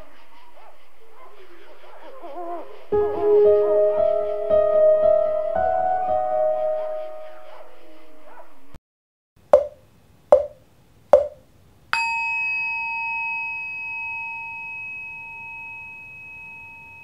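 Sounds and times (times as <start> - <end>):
sharp hollow knocks: 9.5 - 11.4
struck bell ringing: 12.0 - 17.0.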